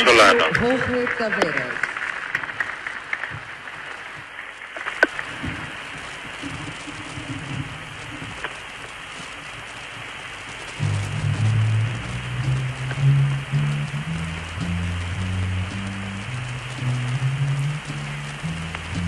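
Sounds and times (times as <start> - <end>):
audience applause: 0.0 - 4.2
recording hiss and crackle: 0.0 - 19.0
orchestra playing: 10.8 - 19.0.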